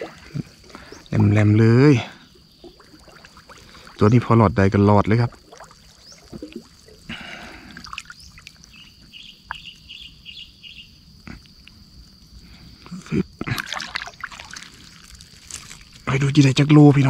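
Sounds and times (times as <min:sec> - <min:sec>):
water splashing and dripping: 0:00.0 - 0:09.9, 0:13.4 - 0:16.1
bird chirps: 0:07.9 - 0:11.0
net rustling: 0:13.7 - 0:16.1.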